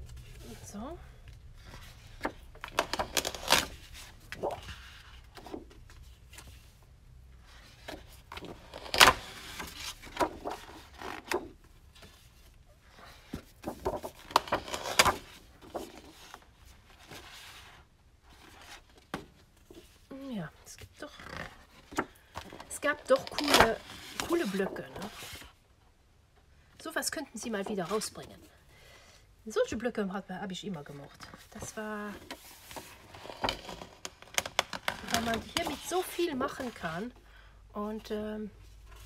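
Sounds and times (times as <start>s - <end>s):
paper sheets rustling and sliding: 13.0s - 16.4s, 21.8s - 25.5s, 31.5s - 37.0s.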